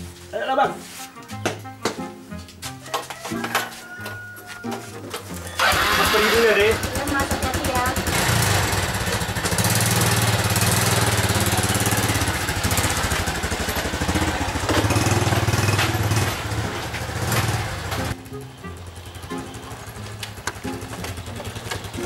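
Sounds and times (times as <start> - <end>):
small motorbike engine: 5.2 - 22.0.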